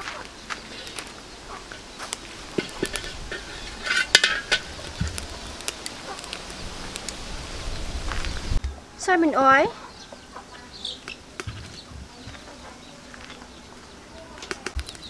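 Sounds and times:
metal spatula scraping wok: 0:01.7 - 0:05.4.

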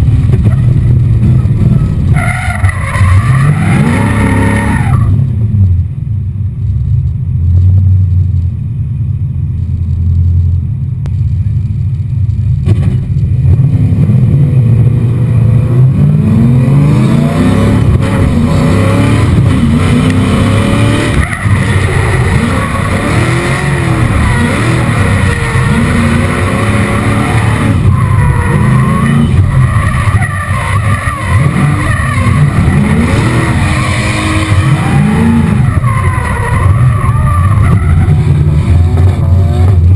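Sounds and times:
car engine revving: 0:00.0 - 0:05.7, 0:12.0 - 0:39.9
tyres skidding: 0:00.0 - 0:05.7, 0:11.4 - 0:39.9.

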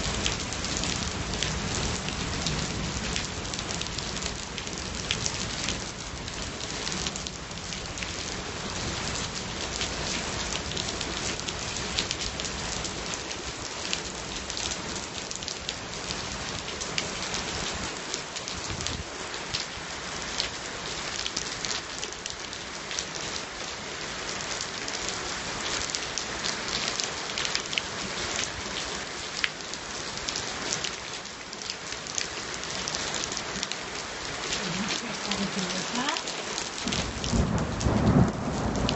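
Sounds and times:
steady rain falling: 0:00.0 - 0:38.9.

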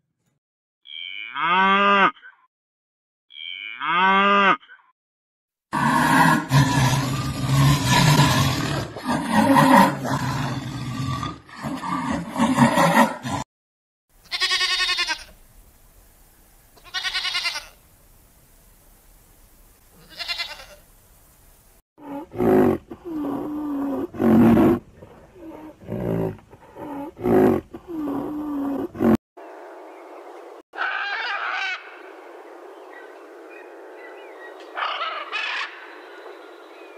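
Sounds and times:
jaguar growling and roaring: 0:05.7 - 0:13.4, 0:22.0 - 0:29.2
goat bleating: 0:14.2 - 0:15.4, 0:16.8 - 0:17.8, 0:20.0 - 0:20.8.

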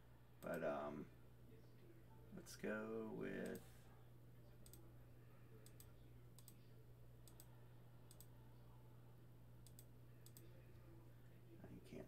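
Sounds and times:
low steady hum: 0:00.0 - 0:12.0
faint computer mouse clicks: 0:07.2 - 0:07.5, 0:09.6 - 0:10.5.

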